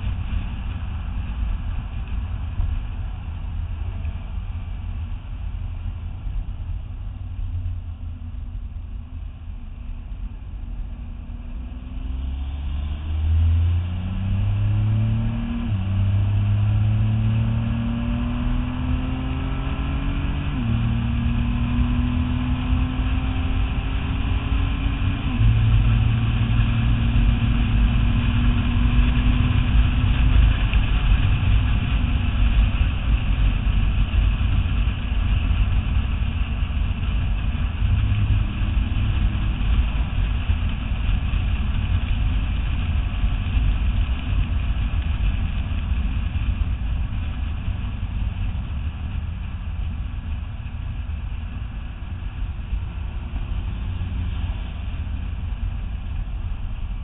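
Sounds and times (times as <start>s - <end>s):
car engine accelerating: 0.0s - 57.0s
wind and road noise: 0.0s - 57.0s.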